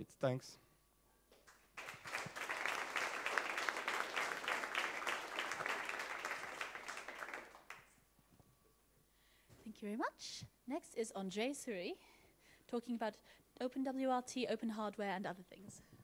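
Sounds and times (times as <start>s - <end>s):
audience applauding: 1.5s - 7.9s.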